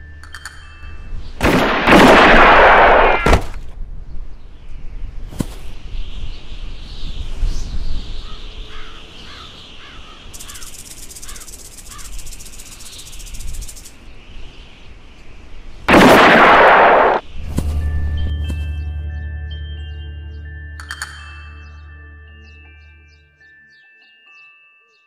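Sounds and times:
music with chiming tones: 0.0s - 1.4s, 17.6s - 25.0s
gunshot: 1.4s - 3.6s, 15.9s - 17.2s
bird calling: 8.1s - 14.1s.

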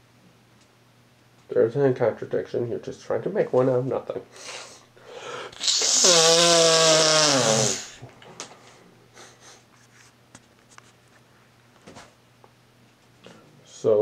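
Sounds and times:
person groaning: 5.4s - 8.0s.

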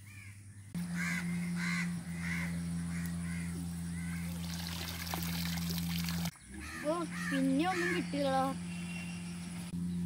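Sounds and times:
crows cawing: 0.0s - 4.4s, 6.6s - 8.1s
low hum: 0.0s - 10.0s
water splashing and pouring: 4.4s - 6.3s.

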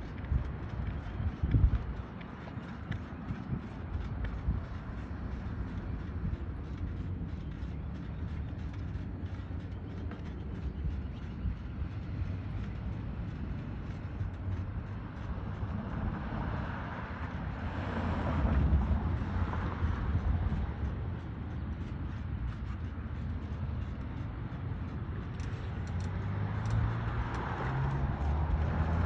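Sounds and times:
low outdoor rumble: 0.0s - 29.0s
vehicle passing: 10.3s - 22.0s, 22.6s - 29.0s.

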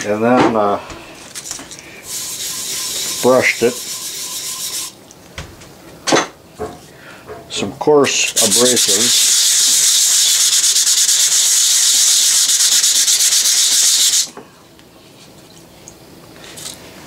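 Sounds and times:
abrasive pad scrubbing metal: 2.1s - 5.0s, 8.4s - 14.3s.

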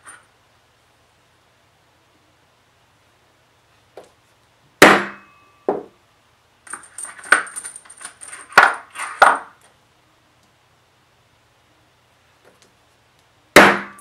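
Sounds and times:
metal stamps clinking: 6.7s - 9.6s
hammer striking metal stamp: 13.6s - 14.0s.

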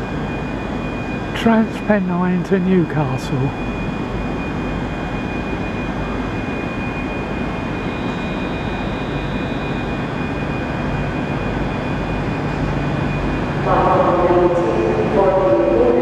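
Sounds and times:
thin steady whine: 0.0s - 16.0s
train rumble and hum: 12.6s - 16.0s.

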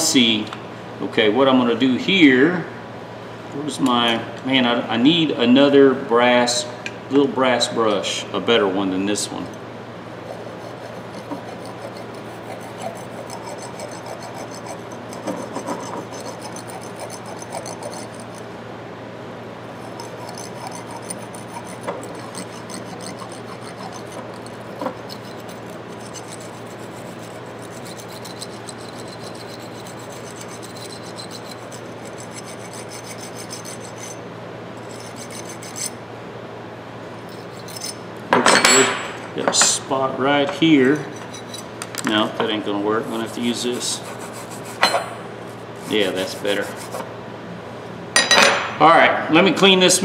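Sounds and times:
wire brush scrubbing steel: 10.2s - 18.5s, 19.7s - 34.2s, 34.8s - 36.0s, 37.2s - 38.0s, 43.0s - 47.1s.

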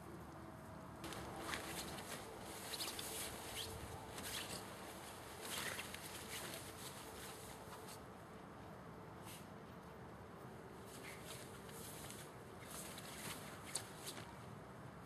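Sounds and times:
faint steady hiss: 0.0s - 15.0s
puppies rustling scuffles: 1.0s - 8.0s, 10.9s - 14.4s.

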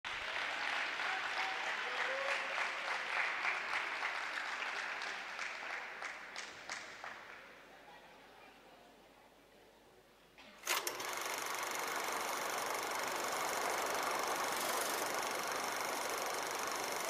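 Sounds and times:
audience applauding: 0.1s - 7.4s, 11.1s - 17.0s.

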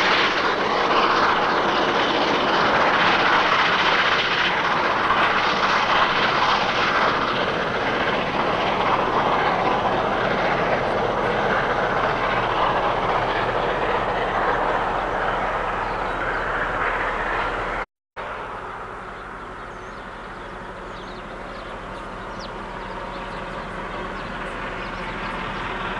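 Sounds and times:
steam locomotive exhaust: 0.0s - 25.9s.

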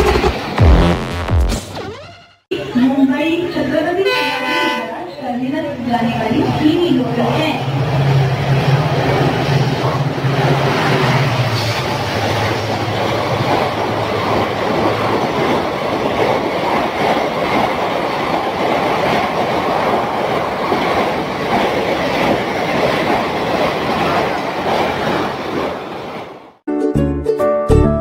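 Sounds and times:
train wheels rushing on rail: 5.7s - 26.6s.

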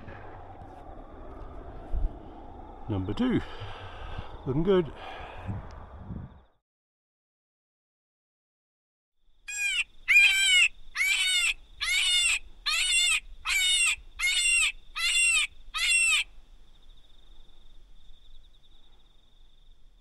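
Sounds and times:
squealing predator call cries: 9.5s - 16.3s.

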